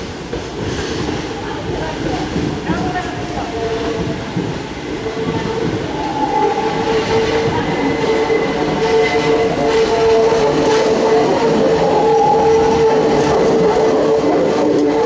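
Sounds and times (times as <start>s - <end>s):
electric train running rumble: 0.0s - 15.0s
high whining tones: 5.0s - 9.7s.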